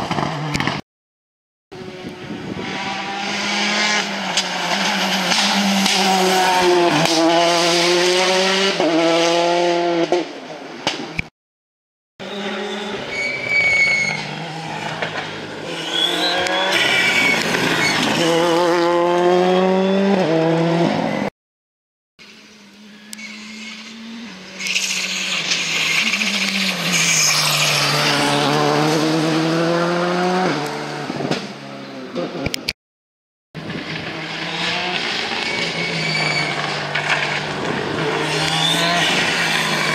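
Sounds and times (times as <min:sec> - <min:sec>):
rally car engine revving: 0:01.8 - 0:10.4, 0:14.1 - 0:21.3, 0:22.8 - 0:32.6, 0:33.6 - 0:39.9.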